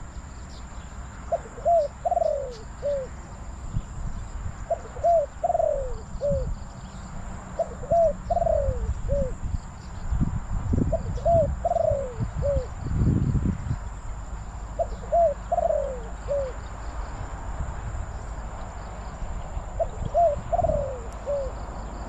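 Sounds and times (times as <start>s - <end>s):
dove cooing: 1.3s - 3.2s, 4.7s - 6.6s, 7.6s - 9.4s, 10.9s - 12.8s, 14.8s - 16.6s, 19.7s - 22.0s.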